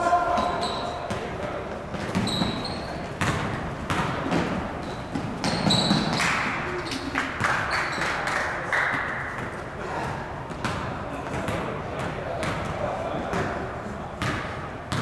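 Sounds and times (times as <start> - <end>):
sneaker squeaks: 0.3 - 1.3, 1.9 - 8.2.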